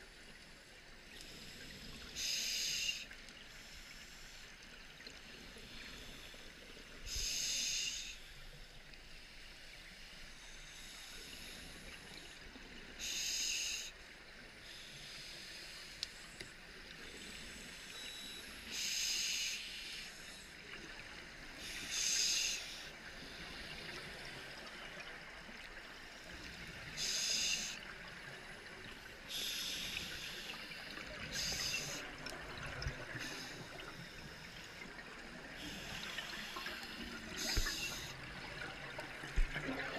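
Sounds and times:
faint steady hiss: 0:00.0 - 0:39.9
underwater bubbling from regulator: 0:29.3 - 0:39.9.

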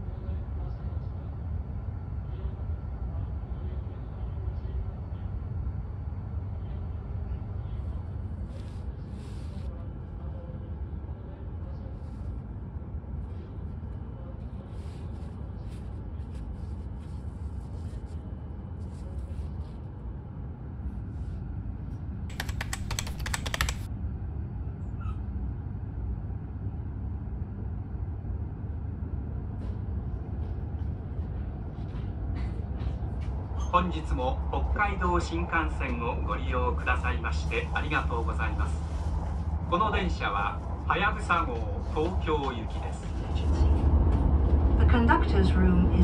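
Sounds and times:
train carriage hum: 0:00.0 - 0:46.0
rapid clicking: 0:22.3 - 0:23.9.

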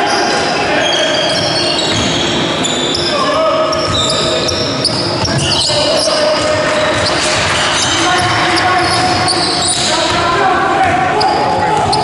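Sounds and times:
sneakers squeaking on floor: 0:00.0 - 0:12.0
basketball bouncing: 0:03.8 - 0:12.0.

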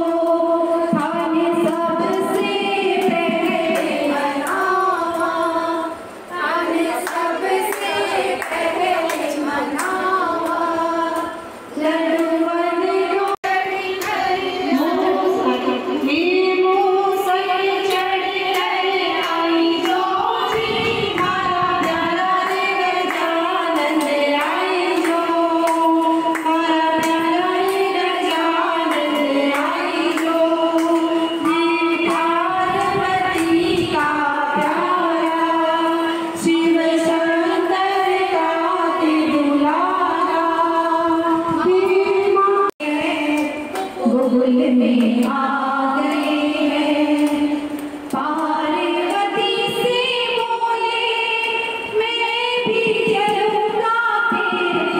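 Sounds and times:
hand claps: 0:00.0 - 0:05.6, 0:06.8 - 0:11.3, 0:14.0 - 0:14.8, 0:17.8 - 0:35.4, 0:43.3 - 0:44.2, 0:46.0 - 0:50.0
women singing in unison: 0:00.0 - 0:54.9.

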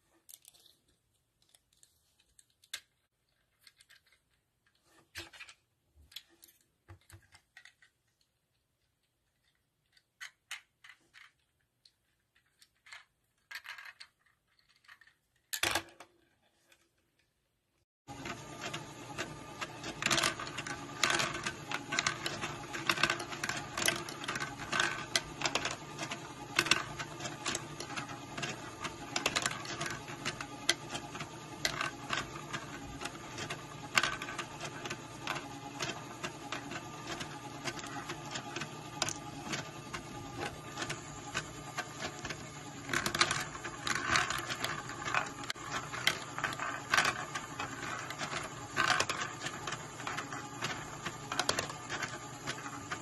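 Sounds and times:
motor and plastic gears whirring: 0:18.1 - 0:53.0.

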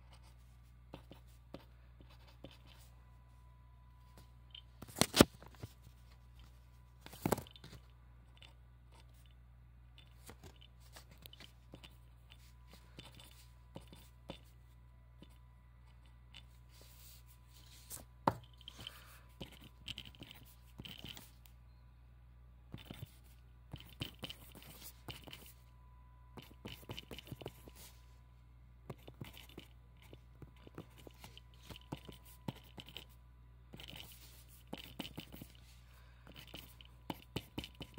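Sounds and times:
pen scratching on paper: 0:00.0 - 0:02.9, 0:11.1 - 0:14.6, 0:18.7 - 0:21.3, 0:22.7 - 0:25.6, 0:26.4 - 0:28.0, 0:28.9 - 0:37.9.

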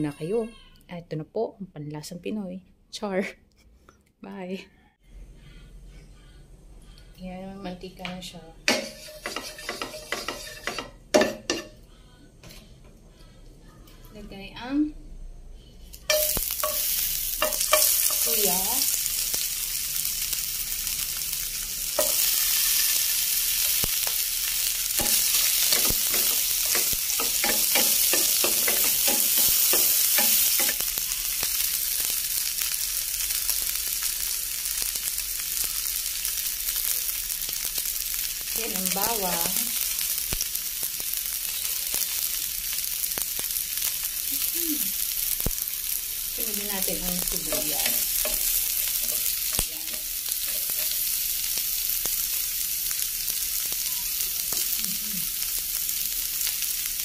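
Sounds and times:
ginger sizzling in hot oil: 0:08.6 - 0:11.7, 0:15.9 - 0:57.0.

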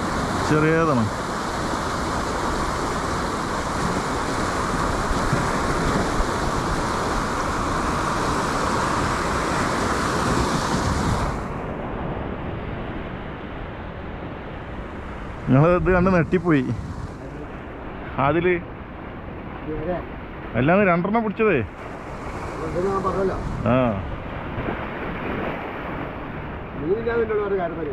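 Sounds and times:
wind on microphone: 0:00.0 - 0:18.2, 0:21.6 - 0:26.8
surf breaking over rocks: 0:00.0 - 0:27.9.

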